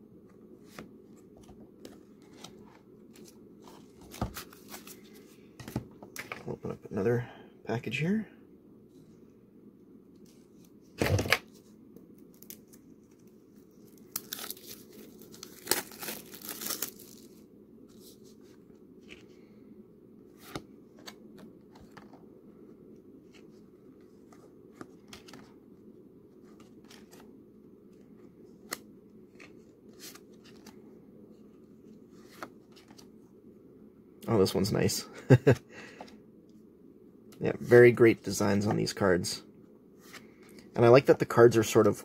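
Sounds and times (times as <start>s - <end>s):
plastic wrapping tearing: 14.1s - 17.2s.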